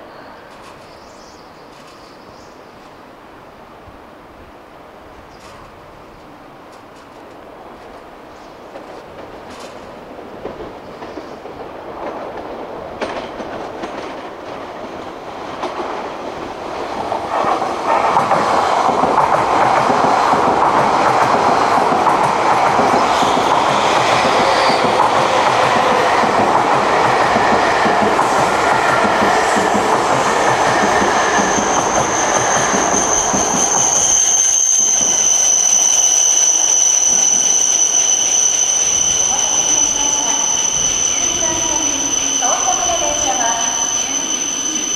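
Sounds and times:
train running noise: 0:00.0 - 0:44.9
train brakes squealing: 0:22.8 - 0:44.9.

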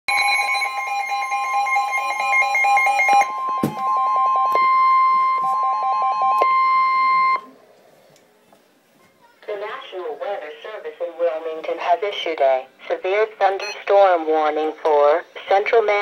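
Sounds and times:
steady warning alarm tone: 0:00.1 - 0:07.5.

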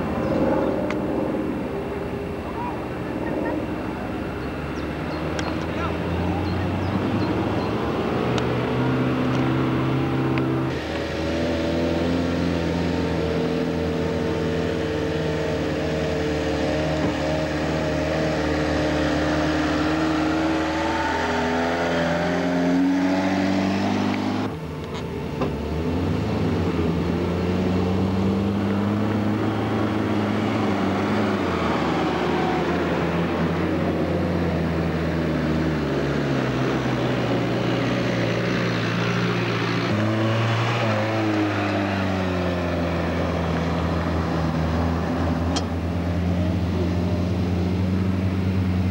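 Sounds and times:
off-road engines revving under load: 0:00.0 - 0:48.9.

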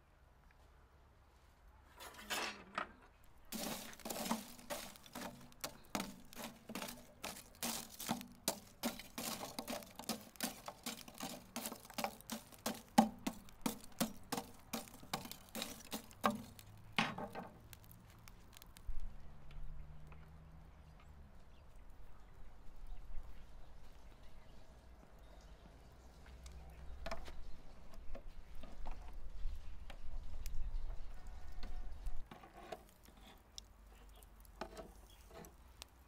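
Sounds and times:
charcoal embers crunching and clinking: 0:03.2 - 0:19.1, 0:25.3 - 0:36.0.

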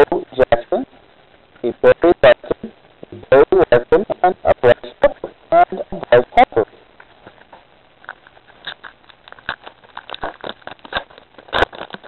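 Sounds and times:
trading cards rustling and clicking: 0:07.2 - 0:12.0.

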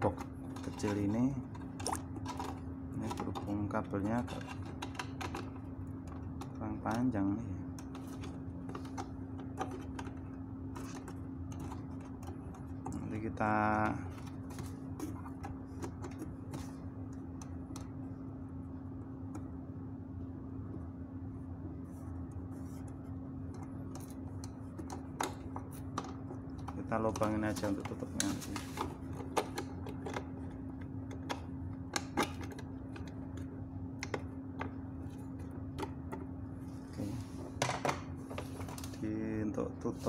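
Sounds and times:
steady low hum: 0:00.0 - 0:40.0
hands clicking and tapping plastic: 0:23.5 - 0:34.8.

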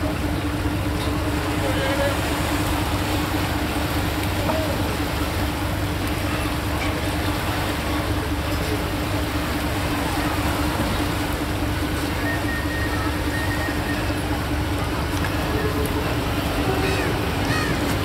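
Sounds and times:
engine running steadily: 0:00.0 - 0:18.0.

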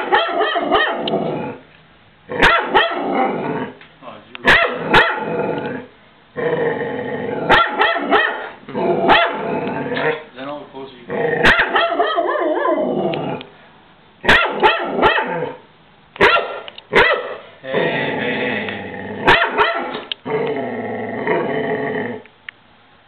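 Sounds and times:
dog barking: 0:00.0 - 0:01.1, 0:02.4 - 0:03.0, 0:04.4 - 0:05.3, 0:07.5 - 0:09.4, 0:11.4 - 0:12.8, 0:14.2 - 0:15.6, 0:16.2 - 0:17.5, 0:19.3 - 0:20.0
dog growling: 0:00.6 - 0:01.6, 0:02.3 - 0:03.8, 0:04.7 - 0:10.3, 0:11.0 - 0:13.5, 0:17.6 - 0:22.3.

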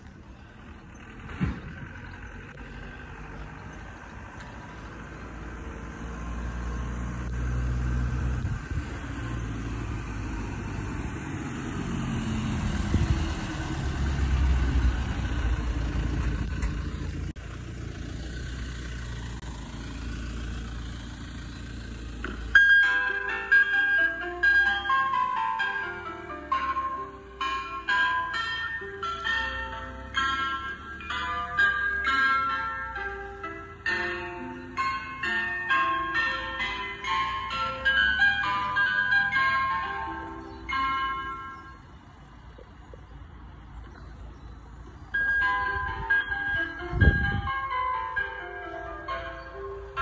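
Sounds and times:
van engine running: 0:00.0 - 0:50.0
ice cream van chime tune: 0:19.3 - 0:50.0.

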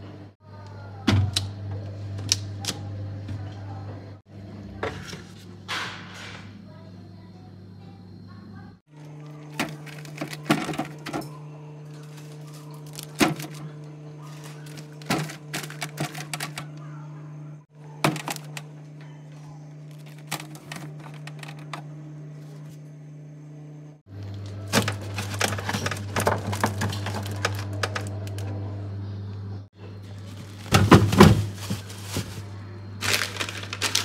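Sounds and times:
fridge humming: 0:00.0 - 0:34.0
food packages handled in fridge: 0:08.9 - 0:17.0, 0:17.6 - 0:22.8, 0:24.1 - 0:28.8, 0:29.8 - 0:34.0.

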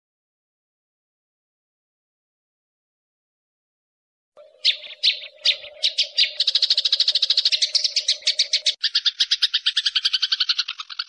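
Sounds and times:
sparrows chirping: 0:04.4 - 0:11.0.

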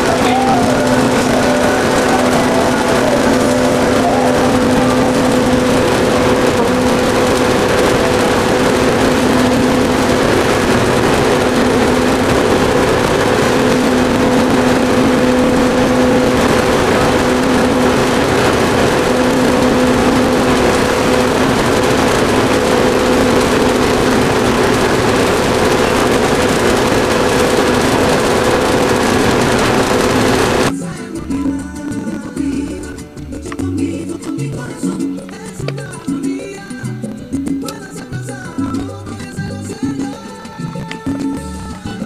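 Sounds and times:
boat motor droning: 0:00.0 - 0:42.0
water and wind hiss: 0:00.5 - 0:30.7.

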